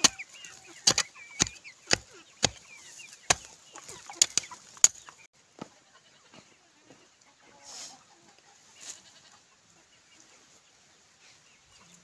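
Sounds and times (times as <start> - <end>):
hoe striking stony soil: 0.0 - 5.1
chickens clucking: 0.0 - 12.0.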